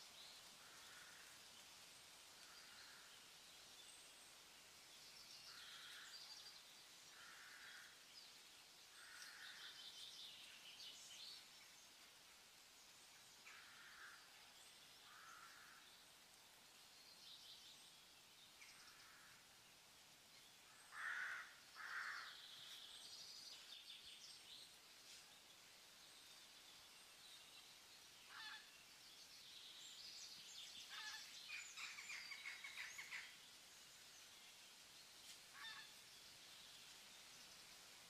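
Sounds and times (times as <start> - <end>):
steady hiss: 0.0 - 38.0
bird chirping calls and trills: 20.1 - 38.0.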